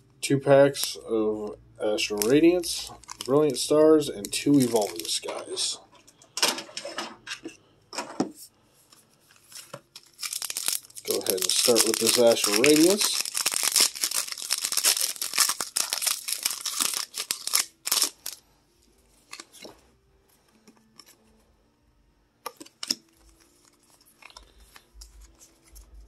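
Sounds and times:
foil wrapper crinkling and tearing: 2.0s - 3.6s, 4.2s - 5.8s, 9.3s - 18.4s, 19.2s - 19.7s, 22.6s - 26.0s.

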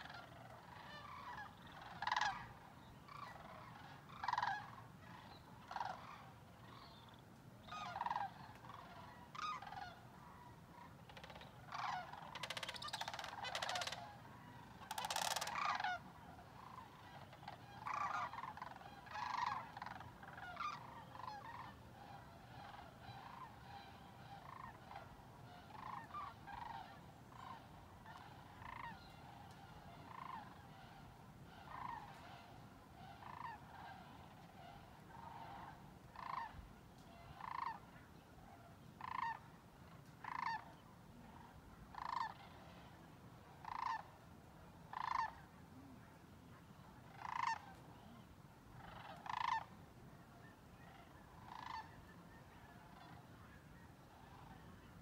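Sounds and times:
distant crane flock calling: 0.0s - 46.0s, 46.6s - 55.0s
crane calling nearby: 0.0s - 55.0s.

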